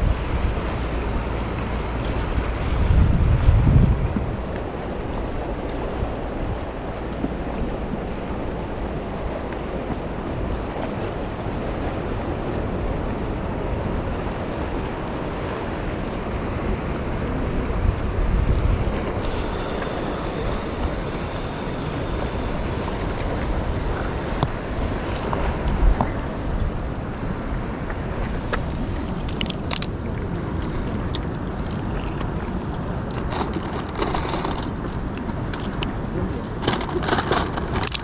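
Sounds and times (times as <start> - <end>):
sea water lapping: 0.0 - 38.0
wind on microphone: 0.0 - 38.0
thin high whine: 18.4 - 25.6.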